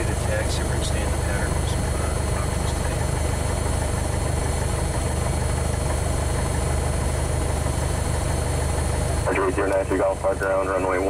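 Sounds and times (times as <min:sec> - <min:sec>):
propeller plane engine idling: 0:00.0 - 0:11.0.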